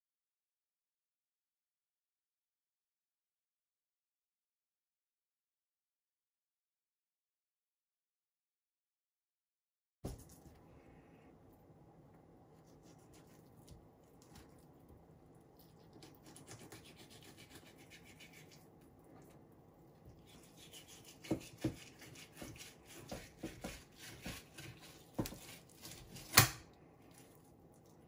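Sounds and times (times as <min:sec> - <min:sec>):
knife scraping on wooden board: 0:15.6 - 0:18.6, 0:20.1 - 0:26.5
knife knocking on board: 0:21.2 - 0:24.5.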